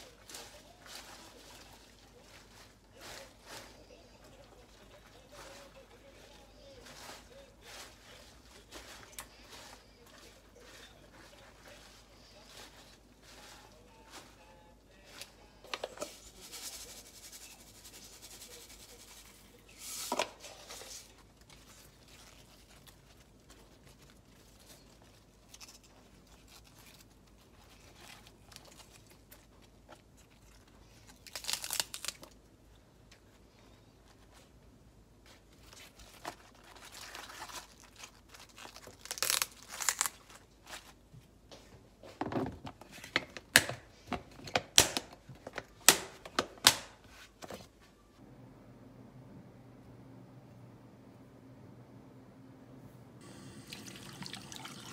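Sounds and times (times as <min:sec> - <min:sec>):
cabbage leaves rustling: 0:00.0 - 0:32.4, 0:35.2 - 0:41.1.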